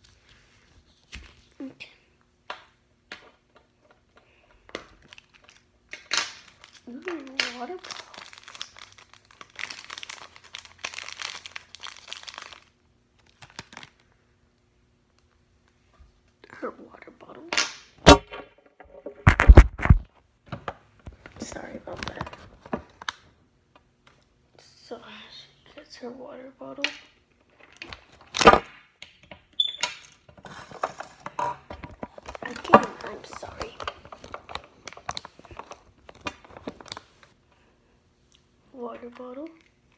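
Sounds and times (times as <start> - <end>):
plastic wrapper crinkling: 4.9 - 14.2, 31.8 - 37.4
camera handling knock and rustle: 18.3 - 20.7.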